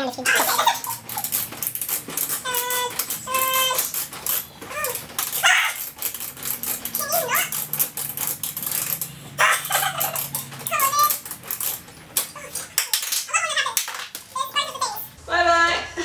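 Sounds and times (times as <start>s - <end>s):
dog whining: 4.7s - 6.0s, 9.4s - 11.2s.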